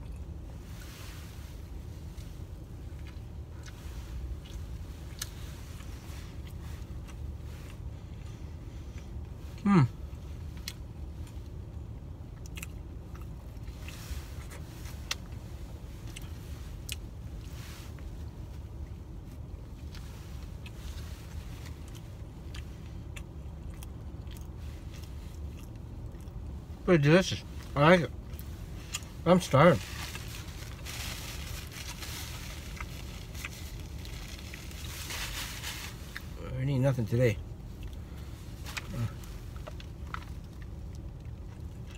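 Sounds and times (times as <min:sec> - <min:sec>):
low hum in car cabin: 0:00.0 - 0:41.9
steady low rumble: 0:00.0 - 0:41.9
person chewing sandwich: 0:01.8 - 0:26.6, 0:30.1 - 0:34.9.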